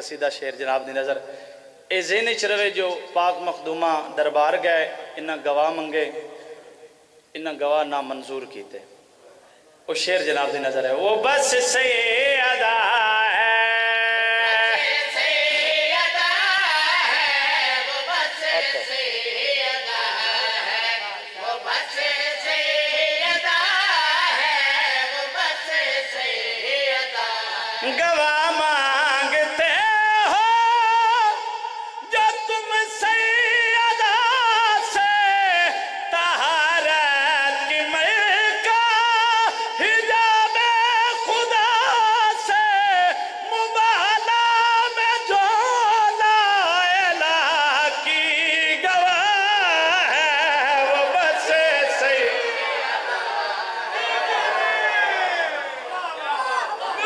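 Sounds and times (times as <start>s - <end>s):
singer breathing: 1.2s - 1.9s
man singing unaccompanied: 9.9s - 52.6s
congregation voices crying out: 50.8s - 57.0s.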